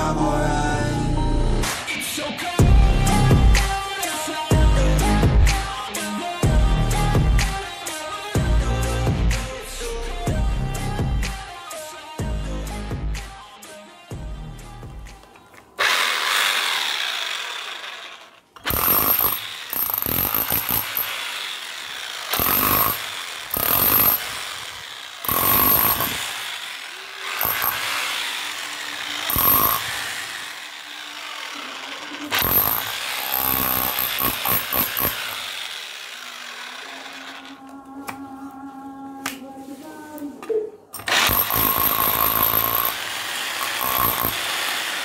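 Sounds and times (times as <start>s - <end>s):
demolition hammer on brick: 18.6s - 21.1s, 22.3s - 24.4s, 25.2s - 26.4s, 29.2s - 30.3s, 32.3s - 35.4s, 41.0s - 45.0s.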